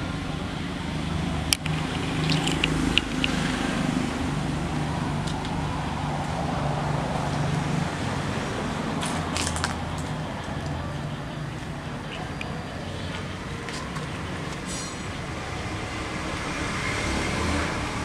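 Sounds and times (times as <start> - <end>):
traffic hum: 0.0 - 18.0
sharp clicks: 1.5 - 3.5.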